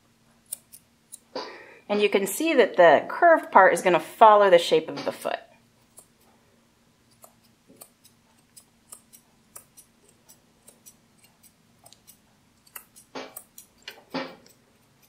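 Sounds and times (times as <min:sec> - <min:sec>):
scissors snipping fur: 0:00.4 - 0:01.3, 0:05.8 - 0:06.3, 0:07.1 - 0:15.0.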